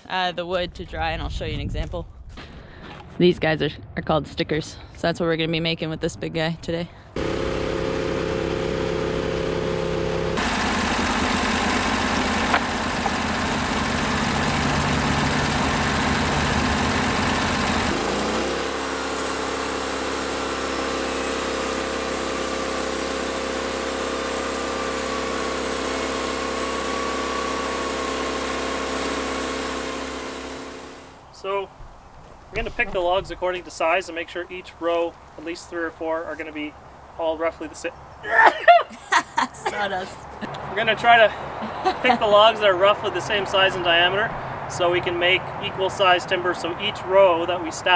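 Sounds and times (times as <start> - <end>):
bandsaw mill cutting log: 7.2 - 31.2.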